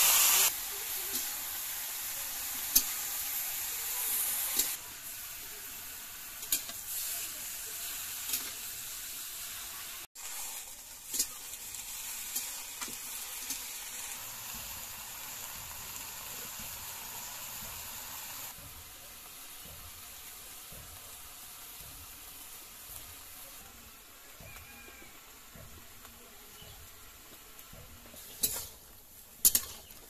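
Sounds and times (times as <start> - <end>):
vegetables sizzling in a pan: 0.0 - 30.0
metal spatula clicking on pan: 29.4 - 29.9.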